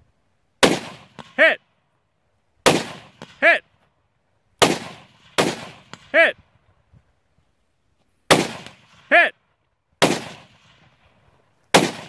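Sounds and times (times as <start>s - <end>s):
rifle shots: 0.6s - 1.6s, 2.6s - 3.6s, 4.6s - 6.3s, 8.3s - 9.2s, 10.0s - 11.1s, 11.7s - 12.0s.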